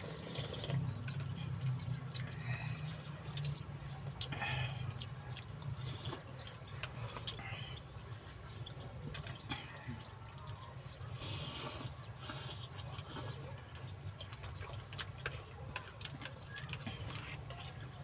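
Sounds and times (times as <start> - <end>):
slurping noodle soup: 0.0 - 1.1, 11.1 - 13.6.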